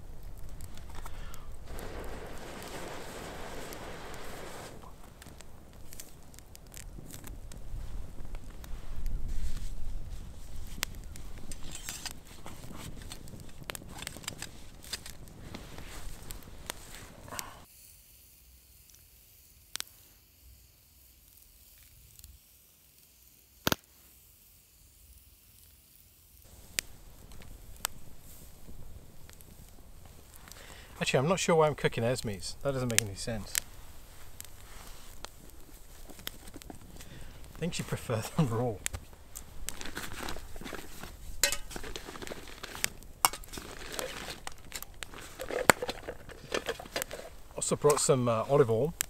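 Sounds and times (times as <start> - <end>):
meat sizzling: 0.0 - 17.6, 26.6 - 49.0
rustling: 0.0 - 17.6, 26.5 - 49.0
handling noise: 32.7 - 49.0
metal cookware clinking: 41.4 - 41.9.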